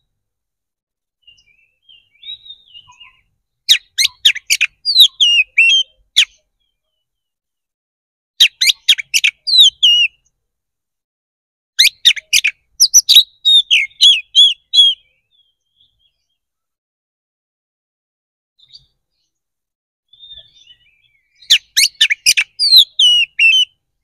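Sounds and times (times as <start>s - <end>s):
magpie-robin singing: 1.2s - 7.3s, 8.4s - 10.4s, 11.8s - 16.5s, 18.6s - 19.4s, 20.1s - 23.8s.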